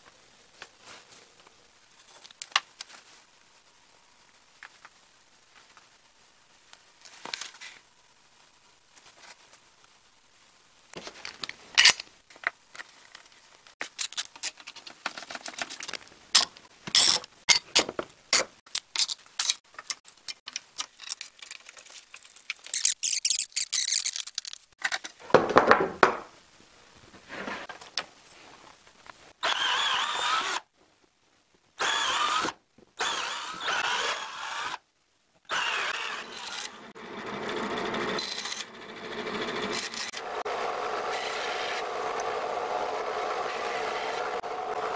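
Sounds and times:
power drill boring into wood: 29.4 - 30.6, 31.8 - 34.8, 35.5 - 44.9.

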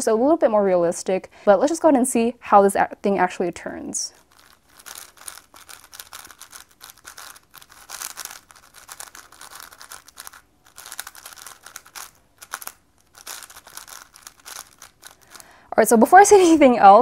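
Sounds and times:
puzzle cube clicking: 4.3 - 15.6.

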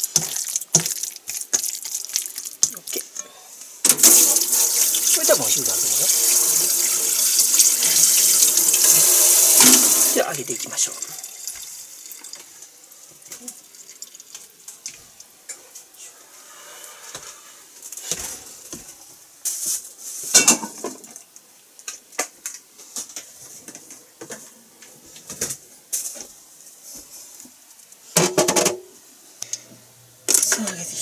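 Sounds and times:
pots and dishes clattering: 20.3 - 21.2.

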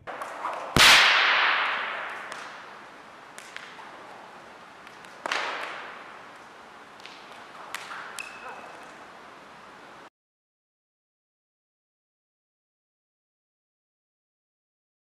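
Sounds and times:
whip cracks reverberating: 0.0 - 9.4.

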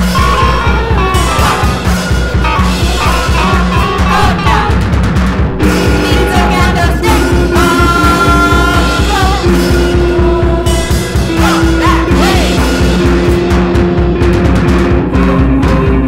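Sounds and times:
person singing: 0.0 - 4.8, 5.6 - 13.3
held guitar notes: 0.0 - 16.0
rapid low drum pulse: 0.0 - 16.0.

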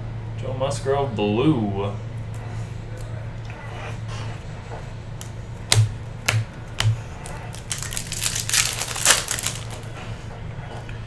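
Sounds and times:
foil wrapper crinkling and tearing: 7.2 - 9.9.

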